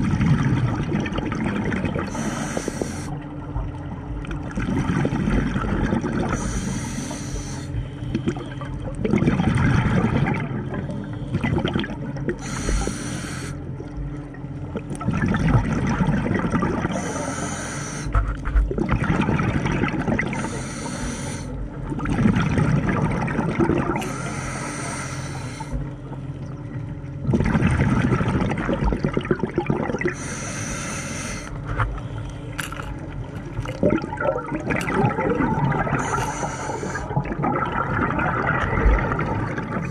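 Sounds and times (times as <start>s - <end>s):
scuba regulator breathing: 2.1s - 3.2s, 6.2s - 8.5s, 12.4s - 13.7s, 16.8s - 18.3s, 20.3s - 21.6s, 24.0s - 26.0s, 30.1s - 32.9s, 35.8s - 37.2s
exhale bubbles rushing: 4.5s - 13.6s, 15.0s - 25.9s, 27.2s - 31.8s, 33.5s - 39.9s.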